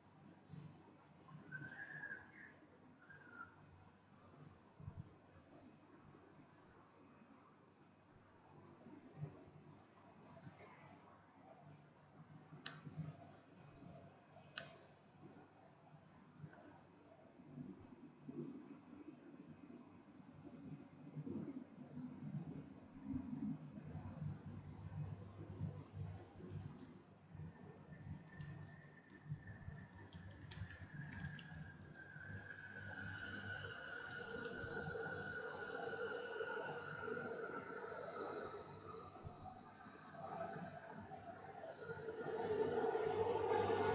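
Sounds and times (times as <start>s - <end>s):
faint high steady whine: 0.0s - 43.9s
faint low hum: 0.0s - 43.9s
computer mouse clicking: 9.9s - 10.9s, 14.5s - 15.0s, 26.4s - 27.0s, 28.0s - 35.2s.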